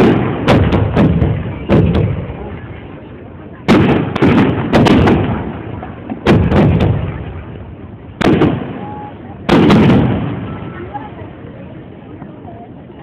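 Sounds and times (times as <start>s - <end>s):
firework shells bursting: 3.7s - 7.6s.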